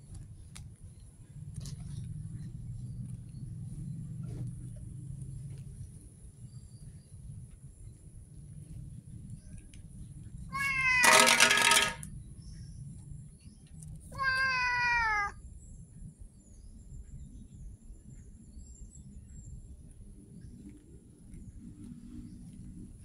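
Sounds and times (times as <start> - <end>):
cat meowing: 10.5 - 11.3, 14.1 - 15.4.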